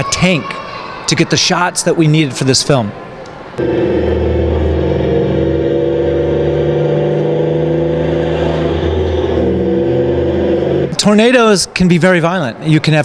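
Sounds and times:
vehicle engine drone: 3.6 - 11.0.

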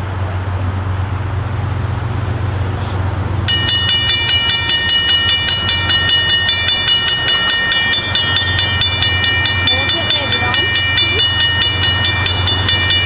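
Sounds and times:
crossing bells ringing: 3.4 - 13.0.

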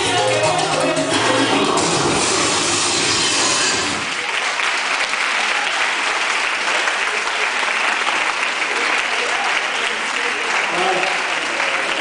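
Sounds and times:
salsa music: 0.0 - 4.2
audience applauding: 3.8 - 12.0.

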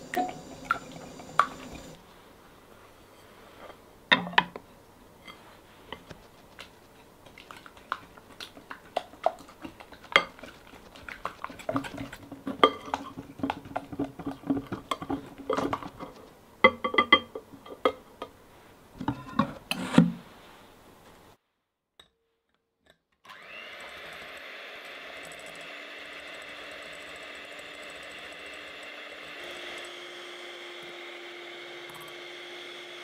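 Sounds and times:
whisk tapping and scraping glass: 7.3 - 18.1.

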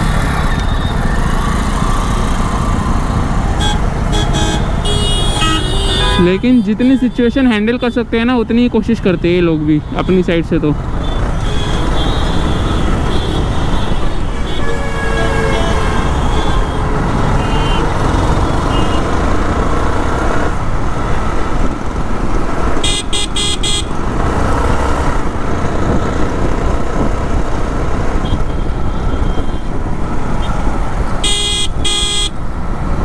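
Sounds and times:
vehicle horns honking: 3.6 - 8.0, 11.0 - 19.1, 22.8 - 24.0, 31.2 - 32.4
wind noise: 24.0 - 31.2.

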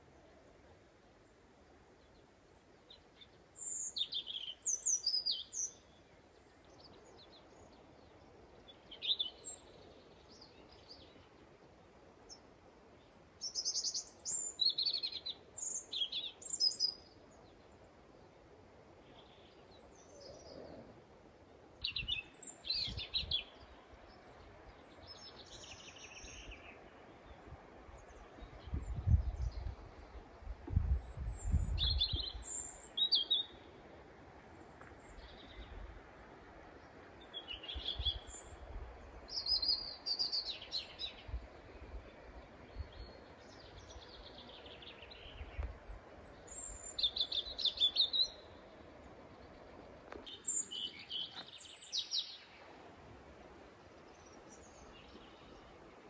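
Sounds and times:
faint steady background hiss: 0.0 - 56.0.

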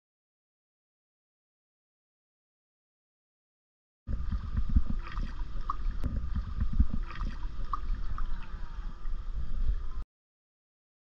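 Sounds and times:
pool water sloshing: 4.1 - 10.0
wind buffeting microphone: 4.1 - 10.0.

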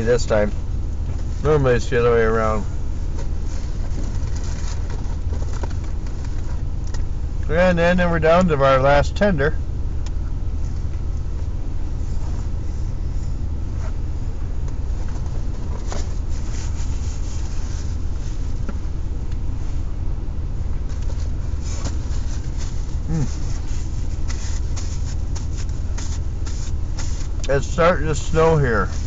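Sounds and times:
car engine idling: 0.0 - 29.0
person eating: 23.0 - 23.6.

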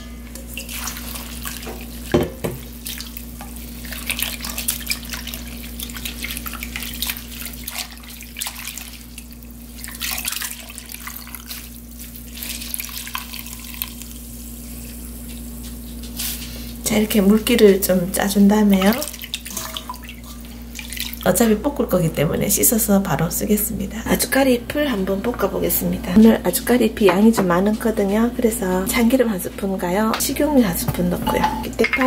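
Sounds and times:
water splashing in a bowl: 0.4 - 14.2, 17.4 - 21.6
water dripping: 18.5 - 21.6, 31.6 - 32.0.

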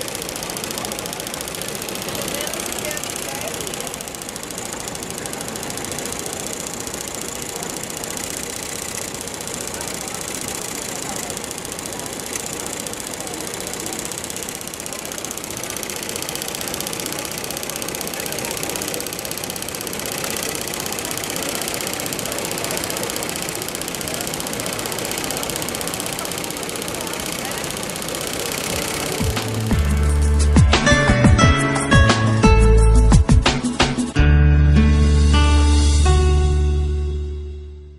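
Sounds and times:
embroidery machine clattering: 0.0 - 31.9.

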